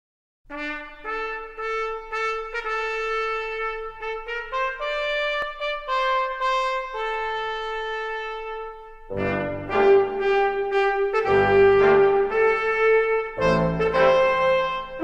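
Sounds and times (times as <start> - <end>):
brass melody of held notes: 0.5 - 15.0.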